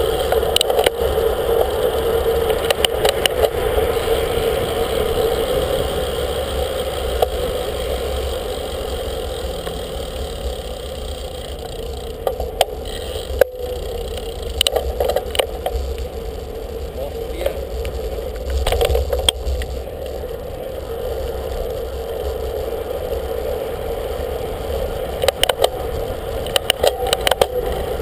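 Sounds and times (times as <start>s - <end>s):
bicycle road noise: 0.0s - 28.0s
clicks and rattles: 11.4s - 16.2s, 17.4s - 20.4s, 25.1s - 27.6s
wind noise: 12.2s - 28.0s.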